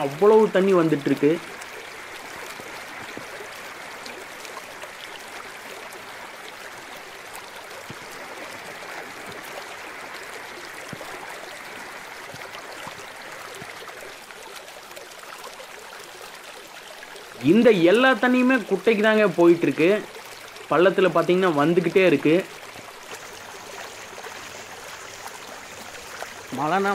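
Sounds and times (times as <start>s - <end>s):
runoff water rushing: 0.0s - 26.9s.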